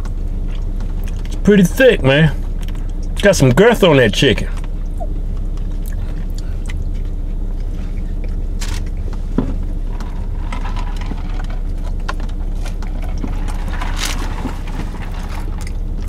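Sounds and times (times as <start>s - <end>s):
people chewing crispy food: 0.0s - 1.4s, 4.6s - 16.0s
car cabin hum: 0.0s - 16.0s.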